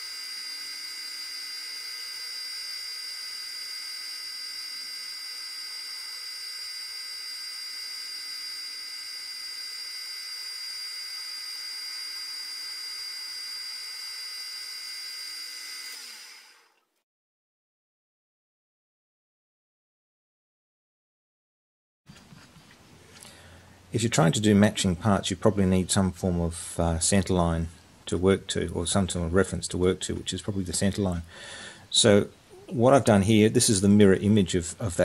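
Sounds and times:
metal lathe whining: 0:00.0 - 0:16.7.

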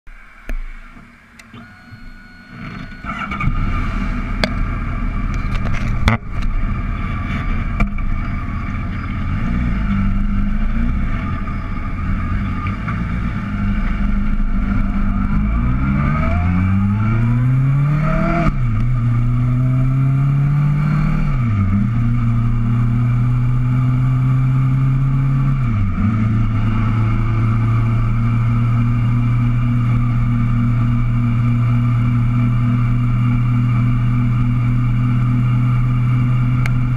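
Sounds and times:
road and wind rush: 0:00.1 - 0:36.9
motorcycle engine revving: 0:02.0 - 0:36.9.

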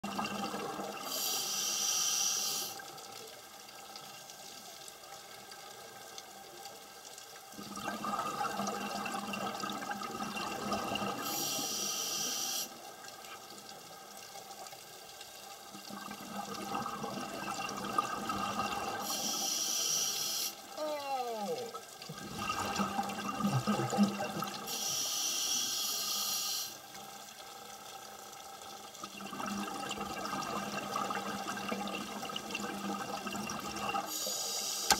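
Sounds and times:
exhaled bubbles underwater: 0:00.0 - 0:01.3, 0:07.6 - 0:11.6, 0:15.8 - 0:19.2, 0:21.6 - 0:24.8, 0:29.0 - 0:34.2
regulator hiss: 0:01.1 - 0:02.8, 0:11.2 - 0:12.8, 0:19.0 - 0:20.6, 0:24.6 - 0:26.8, 0:34.1 - 0:34.9.

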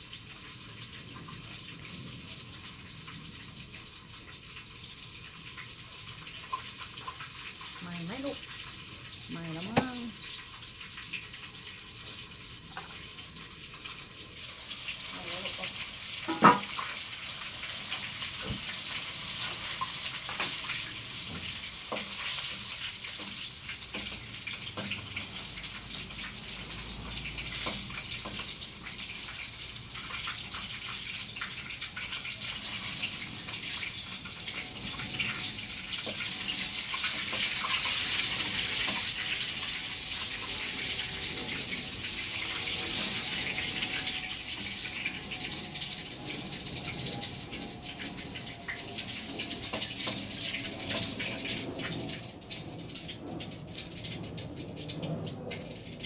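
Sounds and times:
food sizzling in a wok: 0:00.0 - 0:56.0
spatula scraping pan: 0:34.5 - 0:45.5.

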